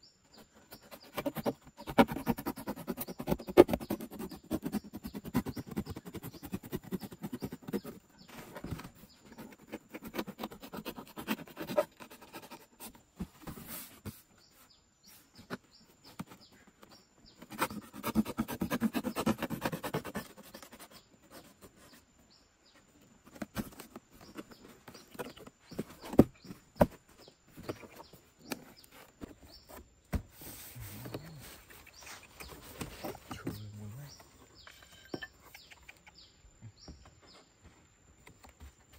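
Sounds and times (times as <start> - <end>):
faint birds chirping: 0.0 - 38.9
knife cutting cardboard: 0.6 - 14.3, 15.4 - 22.0, 23.3 - 29.8.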